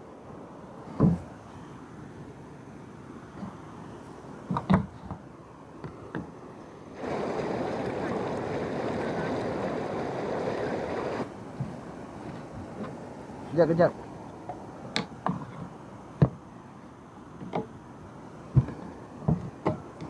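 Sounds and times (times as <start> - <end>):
water rushing into container: 7.0 - 11.3.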